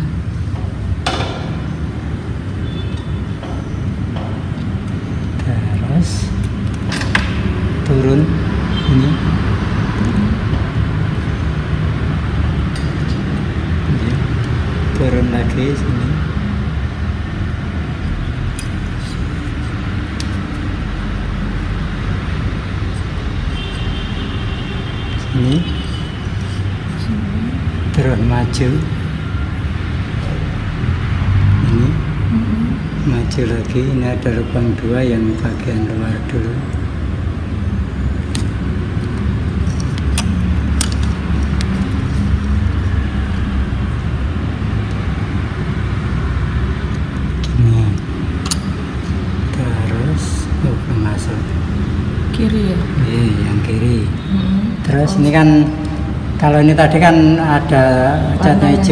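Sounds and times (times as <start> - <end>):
handling clicks: 38.3 - 42.8.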